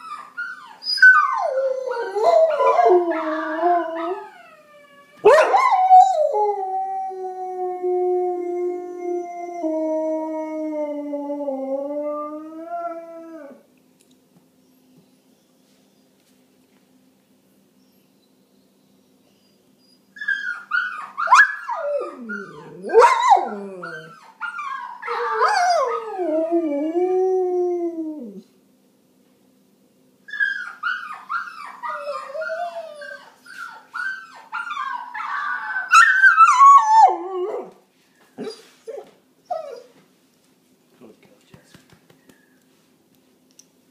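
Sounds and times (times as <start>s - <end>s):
dog howling: 0.0s - 13.6s, 20.4s - 28.5s, 34.0s - 37.8s.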